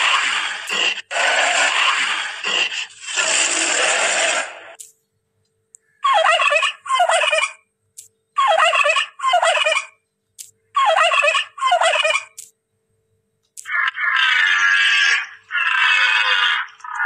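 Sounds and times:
turkey gobbling: 6.1s - 7.6s, 8.4s - 9.9s, 10.8s - 12.4s, 13.7s - 17.0s.

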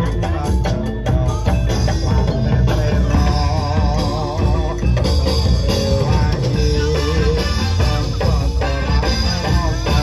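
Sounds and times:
gamelan band playing loudly: 0.0s - 10.0s
steady drumming: 0.0s - 10.0s.

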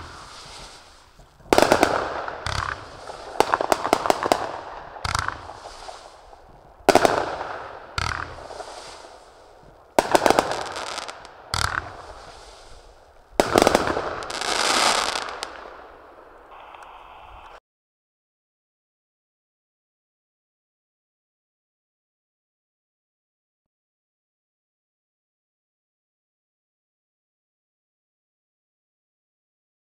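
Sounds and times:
fireworks bangs with hiss: 0.0s - 17.6s
fireworks crackling: 0.0s - 17.6s.

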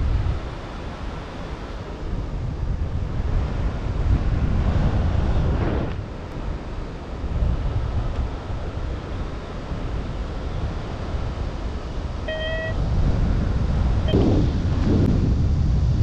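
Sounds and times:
wind buffeting microphone: 0.0s - 16.0s
short beep: 12.3s - 12.8s.

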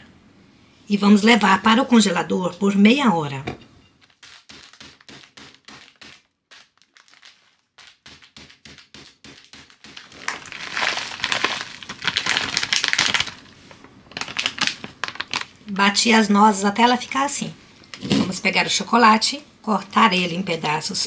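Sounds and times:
plastic bag crinkling: 3.9s - 16.3s
nuts being poured: 4.0s - 13.4s
pestle crushing nuts: 4.0s - 13.4s.

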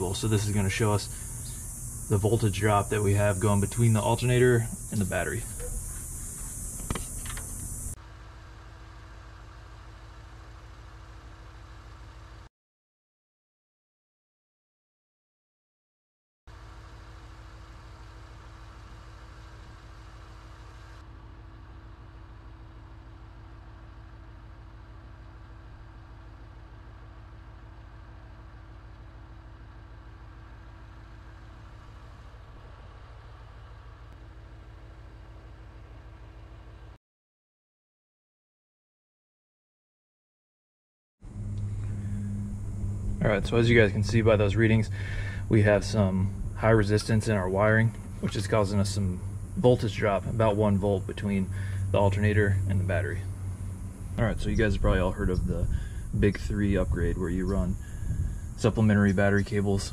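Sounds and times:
high insect hiss: 0.0s - 8.0s, 41.3s - 59.9s
engine idling: 0.0s - 12.5s, 16.6s - 36.9s, 41.2s - 59.9s
faint steady whine: 0.0s - 12.5s, 16.6s - 37.0s, 41.2s - 59.9s.

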